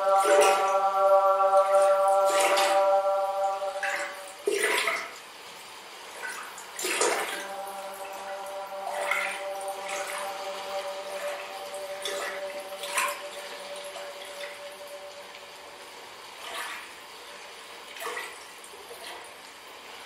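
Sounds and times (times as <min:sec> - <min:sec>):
ambient drone note: 0:00.0 - 0:04.9, 0:06.8 - 0:16.2.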